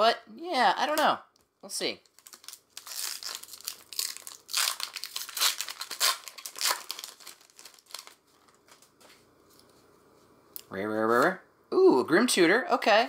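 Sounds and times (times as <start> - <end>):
foil wrapper crinkling and tearing: 2.0 - 8.9.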